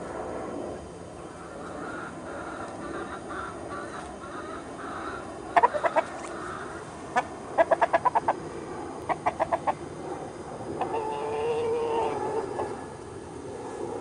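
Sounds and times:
steady background noise: 0.0s - 14.0s
rooster clucking: 1.8s - 8.4s, 9.1s - 9.8s, 10.8s - 12.7s.

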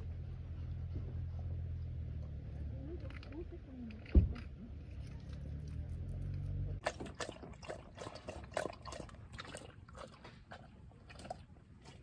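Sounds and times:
dog lapping water: 6.8s - 12.0s.

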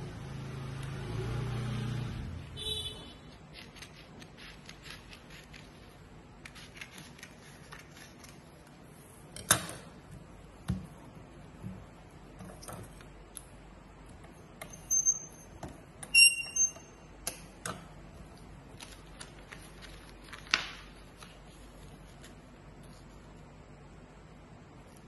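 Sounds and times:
paper rustling and creasing: 18.7s - 23.4s.

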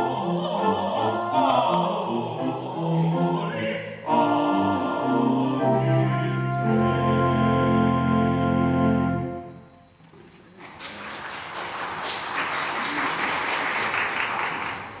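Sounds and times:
vocal duet held chord: 0.0s - 9.5s
audience applause: 10.5s - 15.0s.

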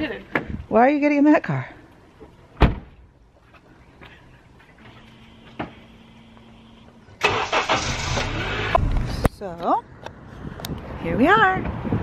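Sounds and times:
car door slamming: 2.6s - 3.0s.

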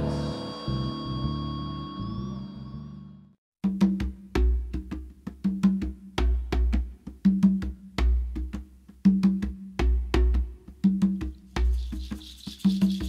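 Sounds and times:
percussive beat with bass: 3.6s - 13.0s.

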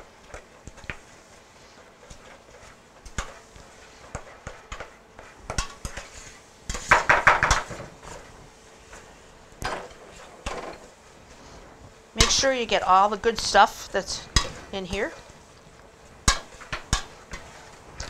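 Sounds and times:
utensils knocking on mixing bowl: 6.7s - 7.7s.

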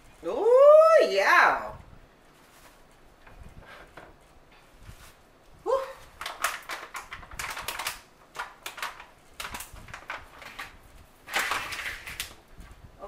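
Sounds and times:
plastic package crinkling: 6.0s - 12.4s.

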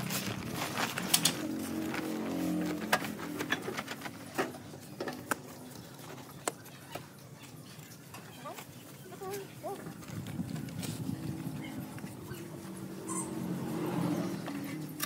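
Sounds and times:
hoe scraping sand and cement: 0.0s - 4.0s.

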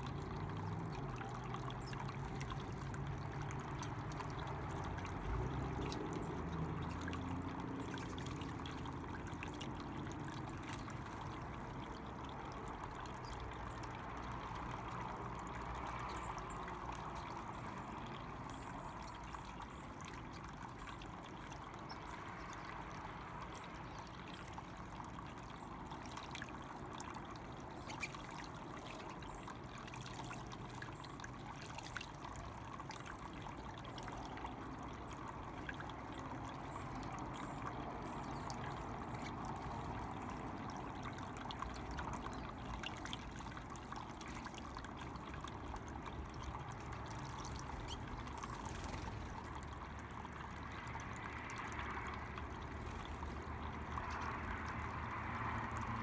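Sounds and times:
tabletop fountain trickling: 0.0s - 56.0s.

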